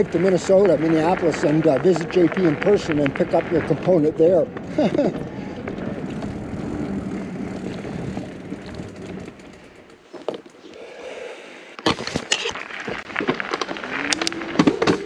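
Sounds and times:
bike clattering over bumps: 0.0 - 10.6
bike rattling: 0.0 - 10.6, 11.8 - 15.0
bike tyres rolling on dirt: 0.0 - 10.9, 11.8 - 15.0.

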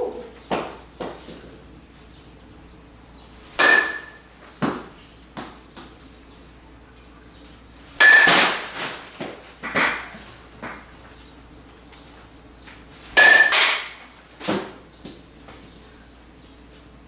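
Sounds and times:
metal bat hitting ball: 3.6 - 5.5, 8.0 - 10.1, 13.2 - 14.7.

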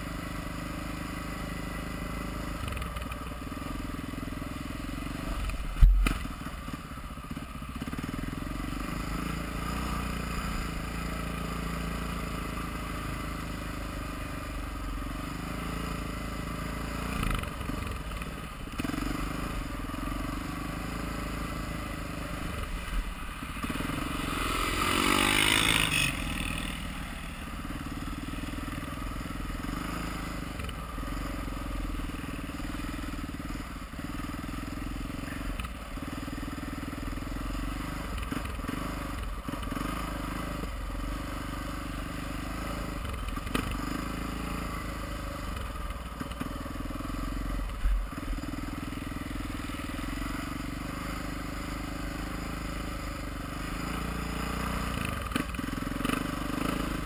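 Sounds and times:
motorcycle engine running: 0.0 - 57.0
sharp thump: 5.8 - 6.2.

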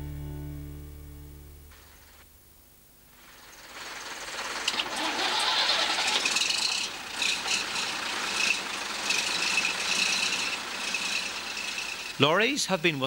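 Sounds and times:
thin high whine: 1.6 - 13.0
lorry engine starting and running: 3.2 - 12.9.

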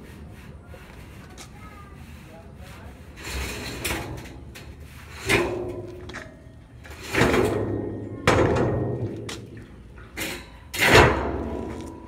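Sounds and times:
hollow metallic clank: 5.2 - 12.0
metal drum rolling down a ramp: 6.9 - 9.3.

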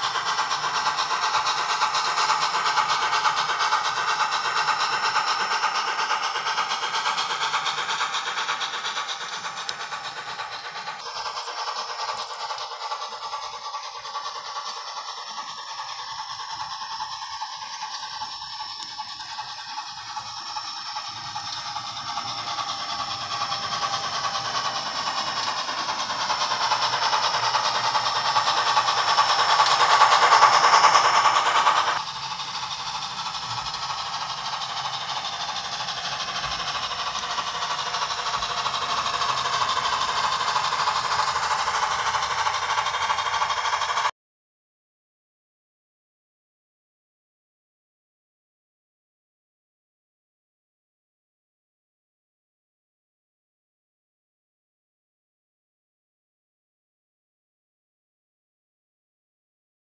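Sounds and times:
model freight cars rolling on track: 0.0 - 44.1
model steam locomotive sounds: 0.0 - 44.1.

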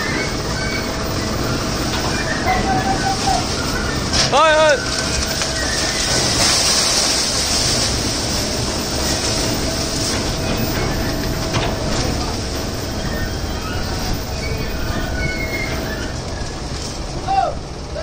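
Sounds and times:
tractor engine running: 0.0 - 18.0
sugarcane stalks sliding and rustling: 2.6 - 10.8.

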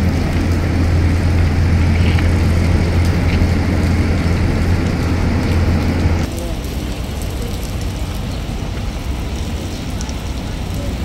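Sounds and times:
low mechanical hum: 0.0 - 6.3.

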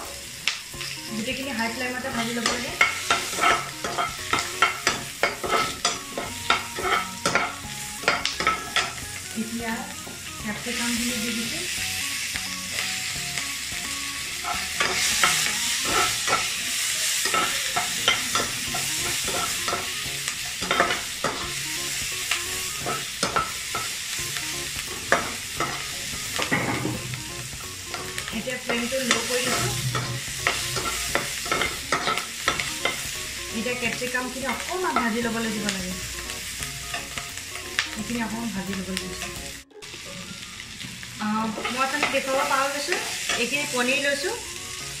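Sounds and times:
vegetables sizzling in hot oil: 0.0 - 45.0
spatula scraping and knocking pan: 2.1 - 9.1, 14.4 - 16.6, 17.2 - 21.6, 22.7 - 24.1, 24.8 - 35.2.

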